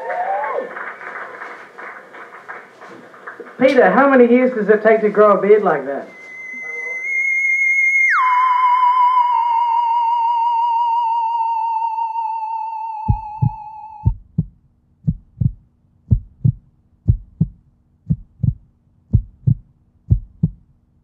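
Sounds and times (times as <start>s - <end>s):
high wavering musical tone: 6.1s - 14.0s
heartbeat thumps: 13.1s - 20.7s.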